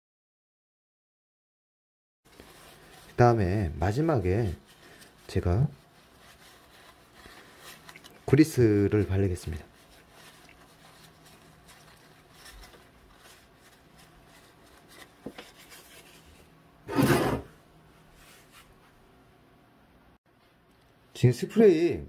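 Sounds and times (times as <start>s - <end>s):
tissue paper rustling: 2.3s - 16.6s, 18.0s - 18.8s.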